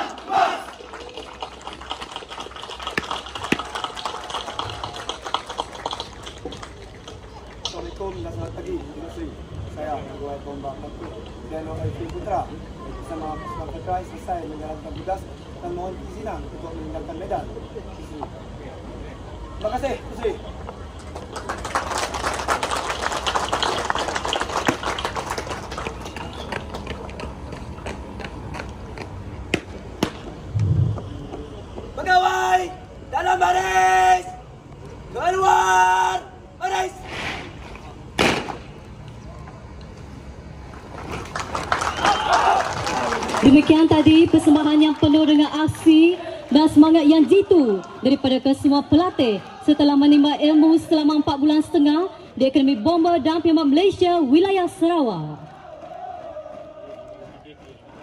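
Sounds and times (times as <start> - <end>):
group shouting battle cry: 0.0 - 0.7
audience applauding: 0.0 - 7.7, 21.0 - 27.3, 40.8 - 45.2.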